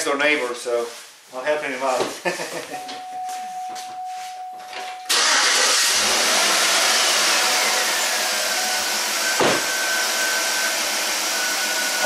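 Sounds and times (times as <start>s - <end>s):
car engine starting and idling: 5.0s - 10.8s
engine whine: 5.0s - 12.0s.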